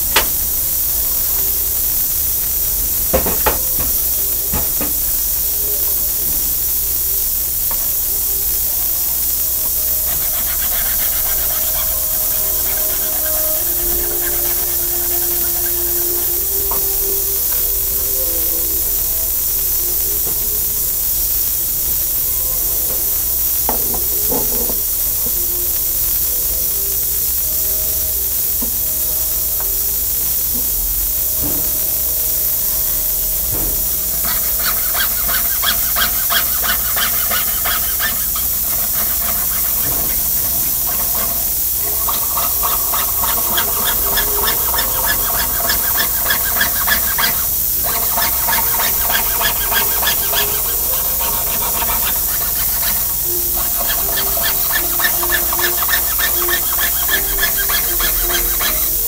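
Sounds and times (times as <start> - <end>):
steady background hiss: 0.0 - 59.0
saw cutting metal: 8.8 - 20.3, 32.6 - 59.0.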